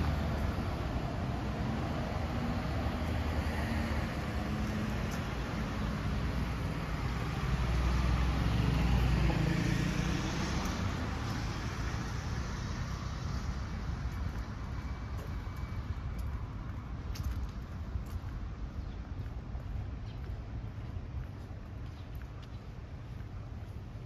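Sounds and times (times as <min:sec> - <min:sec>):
vehicle engine rumble passing: 0:00.0 - 0:17.6.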